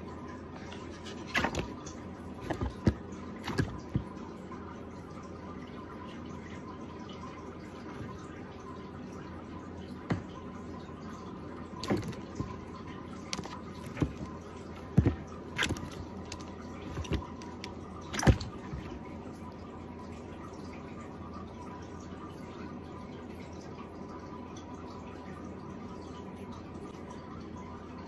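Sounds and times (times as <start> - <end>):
frog slapping and splashing: 0.8 - 4.1, 11.8 - 12.6, 13.2 - 19.1.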